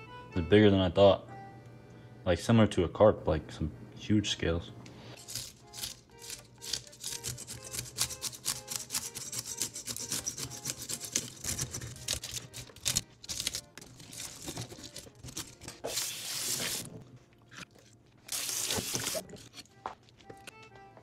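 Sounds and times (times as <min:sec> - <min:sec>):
fish scaler scraping scales: 0:05.2 - 0:16.9.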